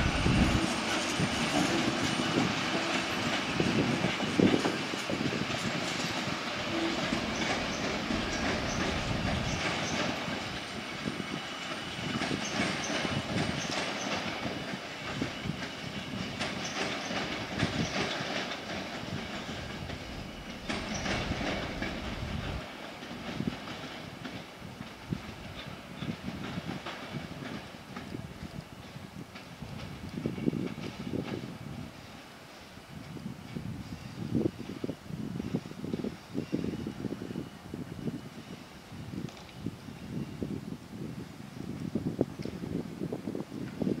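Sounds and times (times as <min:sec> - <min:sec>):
train wheels clicking over rail joints: 0:00.0 - 0:31.6.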